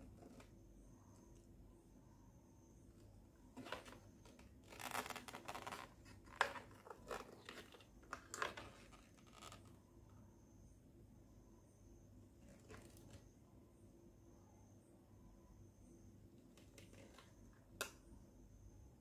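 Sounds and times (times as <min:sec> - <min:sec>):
plastic handling rustling and scraping: 0:03.5 - 0:09.7.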